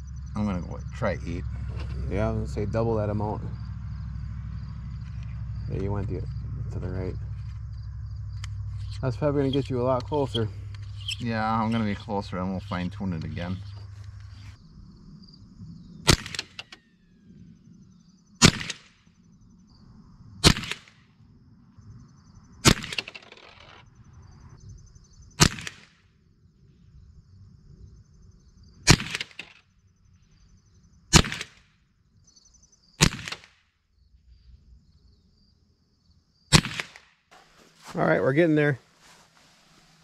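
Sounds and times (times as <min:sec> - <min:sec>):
rifle shots: 0:16.0 - 0:16.8, 0:18.4 - 0:19.1, 0:20.4 - 0:21.0, 0:22.6 - 0:23.2, 0:25.4 - 0:26.0, 0:28.9 - 0:29.6, 0:31.1 - 0:31.6, 0:33.0 - 0:33.6, 0:36.5 - 0:37.2.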